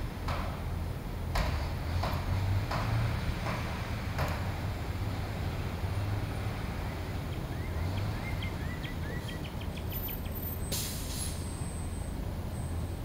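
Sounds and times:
brief hiss: 10.7 - 11.5.

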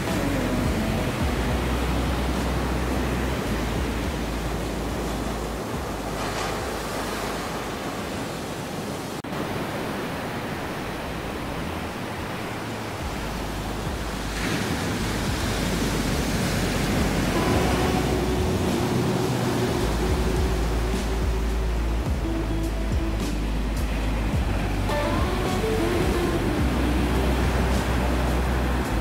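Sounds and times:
soft background music: 0.0 - 7.7, 13.0 - 29.0
waves breaking on a beach: 0.0 - 29.0.

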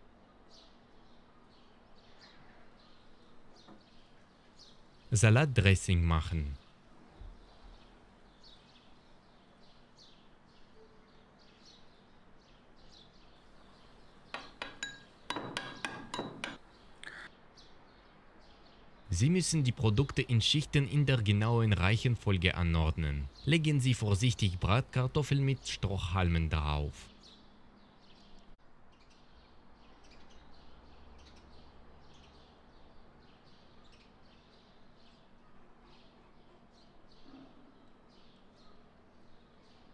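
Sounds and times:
birds chirping: 0.2 - 39.9
metal spoon clinking ceramic bowl: 14.4 - 16.6.

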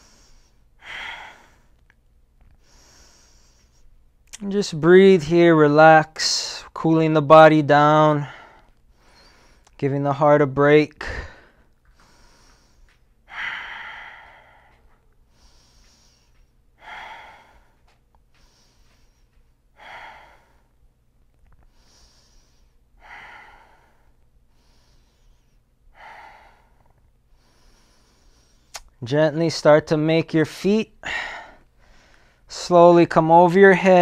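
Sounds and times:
man breathing slowly: 0.0 - 4.1, 8.1 - 9.8, 11.0 - 28.9, 31.0 - 32.5.

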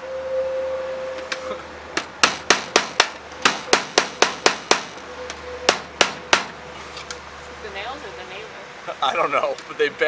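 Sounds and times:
hammer striking nails in metal: 2.0 - 5.0.

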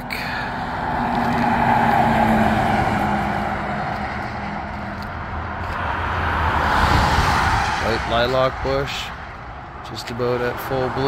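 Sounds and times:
truck passing on highway: 0.0 - 11.0
vehicle approaching: 0.0 - 11.0.

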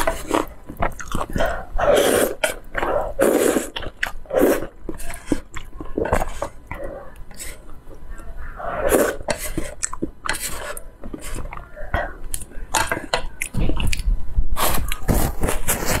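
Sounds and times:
wet chewing and smacking: 0.0 - 7.3, 9.7 - 12.5
slurping noodles: 0.0 - 7.7, 8.6 - 12.5.

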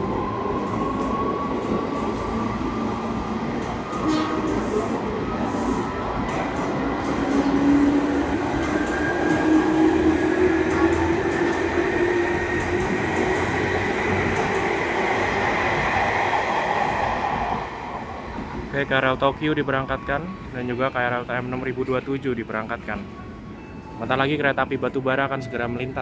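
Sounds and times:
wheels rumbling on rails: 0.0 - 18.8.

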